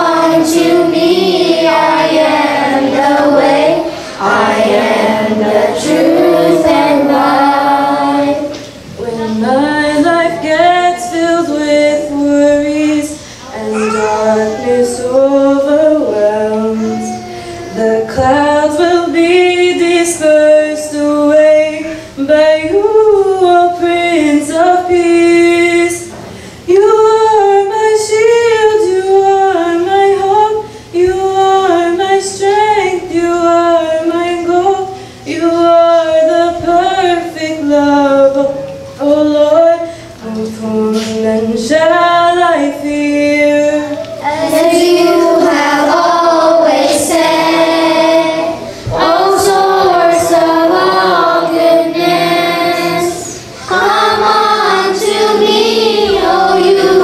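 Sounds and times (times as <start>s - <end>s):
children's choir singing a hymn: 0.0s - 57.0s
woman singing into a microphone: 3.8s - 44.3s.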